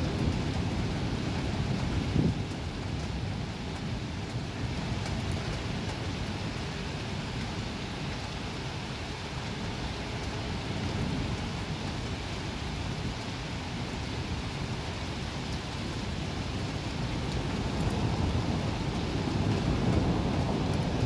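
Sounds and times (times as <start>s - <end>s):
faint thunder rumble: 0.0s - 8.1s, 15.7s - 21.0s
steady rain falling: 0.0s - 21.0s.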